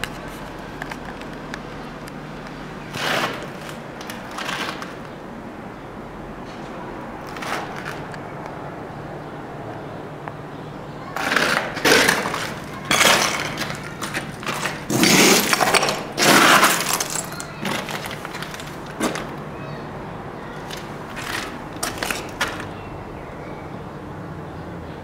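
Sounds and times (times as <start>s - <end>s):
footsteps crunching on rubble: 11.2s - 19.4s, 20.6s - 22.8s.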